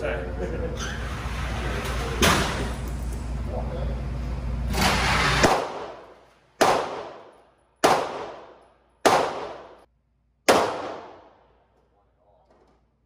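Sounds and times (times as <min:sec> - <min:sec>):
handgun shots with ringing echo: 0:05.4 - 0:09.9, 0:10.5 - 0:11.4.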